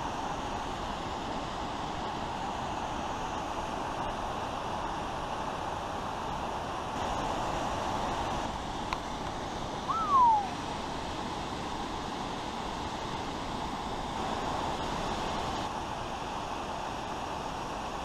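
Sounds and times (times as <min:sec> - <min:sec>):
waterfall rushing: 0:09.6 - 0:11.0
loud whistle sliding down: 0:09.9 - 0:10.6.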